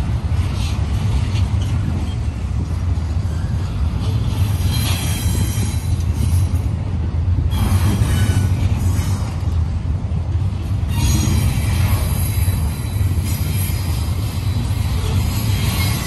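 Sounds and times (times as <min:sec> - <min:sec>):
train wheels rumbling on rail: 0:00.0 - 0:16.0
high-pitched wheel squeals: 0:10.9 - 0:14.0.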